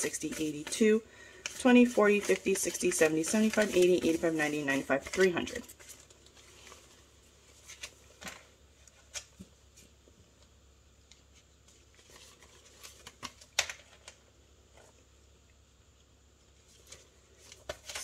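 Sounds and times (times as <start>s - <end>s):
banknotes crinkling: 0.0s - 9.4s, 11.6s - 14.8s, 16.6s - 18.0s.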